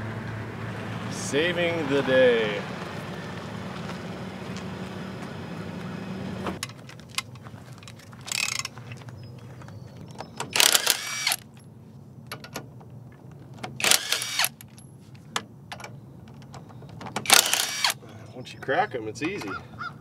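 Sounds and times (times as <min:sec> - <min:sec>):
cordless power tool whirring: 0:10.6 - 0:11.4, 0:13.8 - 0:14.6, 0:17.2 - 0:18.0.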